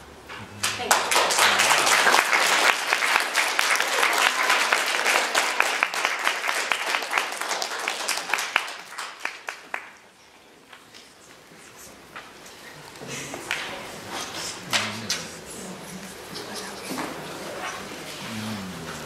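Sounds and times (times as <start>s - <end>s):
audience applauding: 0.6s - 10.1s.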